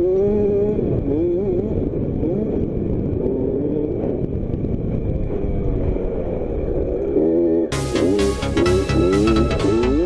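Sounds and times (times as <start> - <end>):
motocross bike engine revving: 0.0 - 4.2, 7.1 - 10.0.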